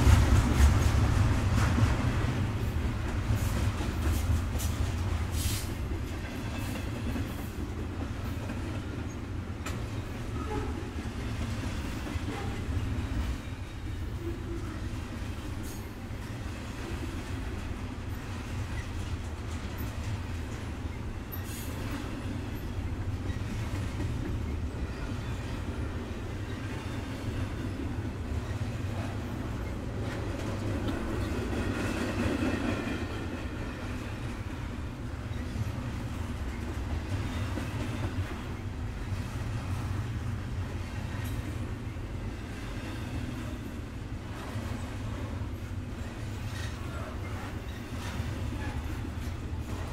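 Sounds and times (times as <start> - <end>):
freight train wheels rumbling: 0.0 - 49.9
faint high wheel squeal: 21.2 - 23.6.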